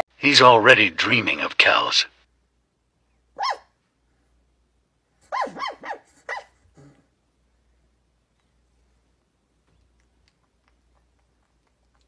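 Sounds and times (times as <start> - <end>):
puppy whimpering and yipping: 3.4 - 3.6, 5.3 - 6.6.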